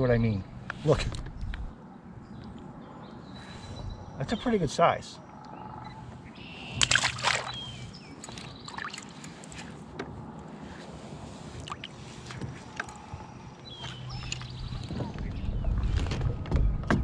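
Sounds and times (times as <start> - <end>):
water moving against hull: 5.9 - 16.5.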